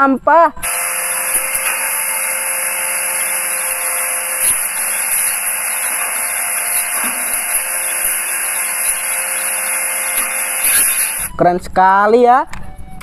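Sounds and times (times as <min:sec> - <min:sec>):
garbage truck running: 0:03.8 - 0:10.5.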